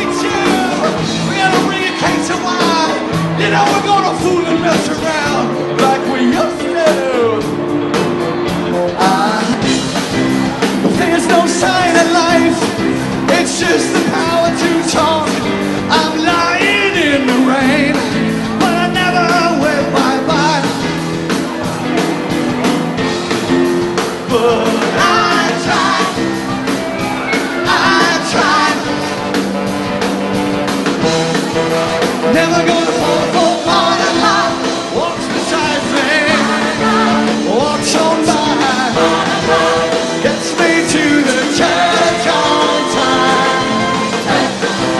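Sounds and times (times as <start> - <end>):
person singing: 0.0 - 7.6, 24.3 - 26.3, 32.2 - 44.9
drum kit steady beat: 0.0 - 44.9.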